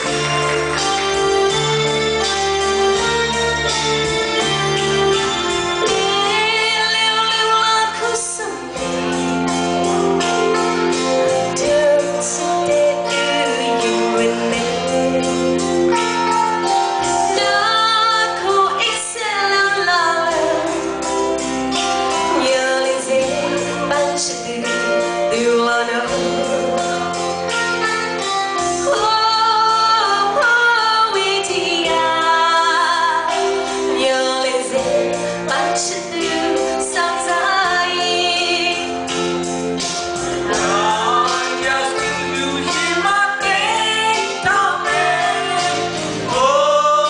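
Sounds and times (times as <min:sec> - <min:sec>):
keyboard accompaniment: 0:00.0 - 0:47.0
woman singing into a microphone: 0:05.8 - 0:09.0, 0:11.5 - 0:15.7, 0:17.2 - 0:21.0, 0:22.2 - 0:27.2, 0:28.8 - 0:39.2, 0:40.5 - 0:47.0.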